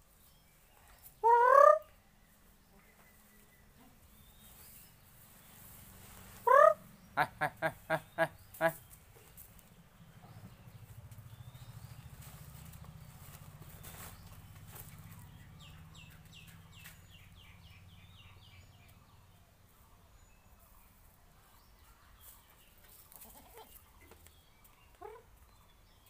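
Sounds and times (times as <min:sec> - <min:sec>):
goat kid bleating: 0:23.2 - 0:23.8.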